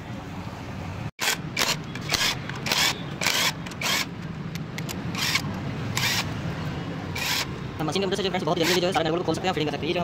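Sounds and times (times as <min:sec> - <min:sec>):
power wrench bursts: 0:01.2 - 0:04.1, 0:04.9 - 0:06.4, 0:07.1 - 0:07.6, 0:08.6 - 0:08.9.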